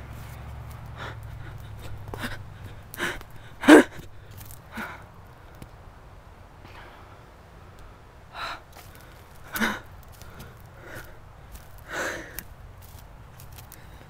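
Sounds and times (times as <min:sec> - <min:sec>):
person breathing hard in gasps: 0:01.0 - 0:05.1, 0:08.3 - 0:11.2, 0:11.8 - 0:12.4.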